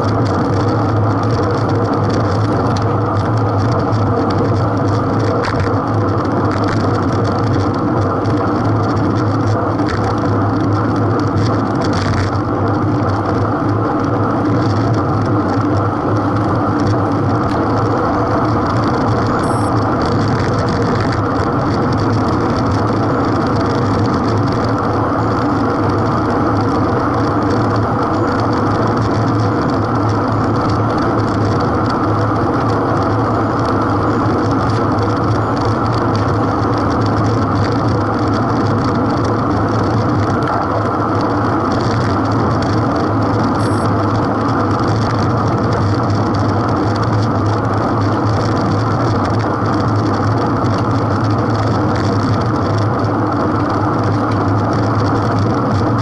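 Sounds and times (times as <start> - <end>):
bicycle road noise: 0.0 - 56.0
low hum: 14.4 - 45.2.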